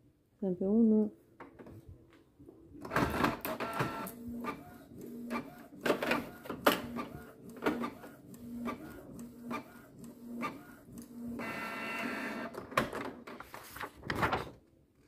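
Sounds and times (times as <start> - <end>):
printer paper-feed clatter: 2.8 - 14.6
printer sharp clicks: 2.9 - 4.6, 5.3 - 12.9
print head motor hum: 3.6 - 12.5.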